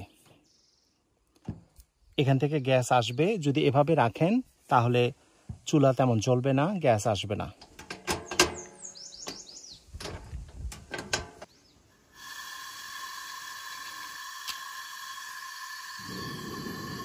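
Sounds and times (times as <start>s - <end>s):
camp stove clicks and knocks: 7.6s - 11.5s
bird chirps: 8.3s - 10.0s, 11.4s - 11.9s
steady gas hiss: 11.8s - 17.0s.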